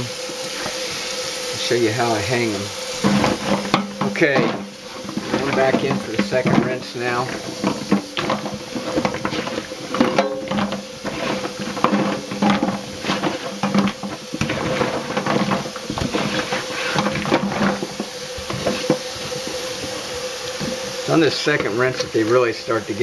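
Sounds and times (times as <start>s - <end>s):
water churning: 0.0s - 23.0s
nuts clattering in a steel sink: 2.0s - 19.6s.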